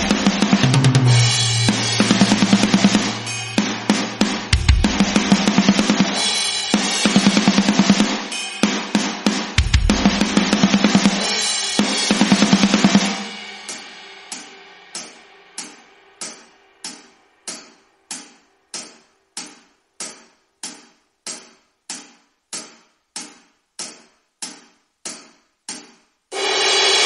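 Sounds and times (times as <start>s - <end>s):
drum fill: 0.0s - 14.2s
cymbal struck on a beat: 0.0s - 20.2s, 26.3s - 27.0s.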